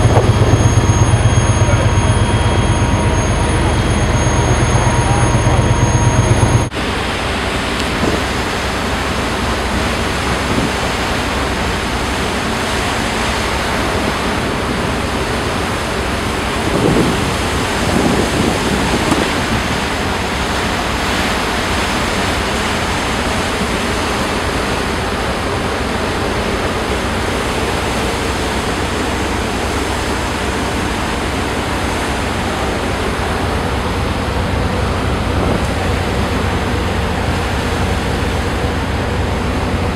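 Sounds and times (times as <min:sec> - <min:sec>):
water along hull: 0:00.0 - 0:39.9
wind across microphone: 0:10.2 - 0:11.0, 0:16.3 - 0:20.0.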